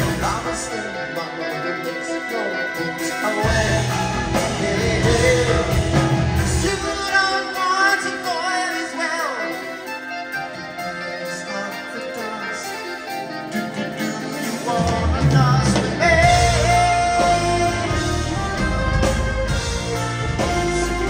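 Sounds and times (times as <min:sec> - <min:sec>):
bass: 0:00.0 - 0:00.8, 0:03.4 - 0:07.3, 0:14.7 - 0:21.0
drums: 0:00.0 - 0:21.0
electric guitars: 0:00.0 - 0:21.0
keyboards: 0:00.0 - 0:21.0
person singing: 0:00.0 - 0:21.0.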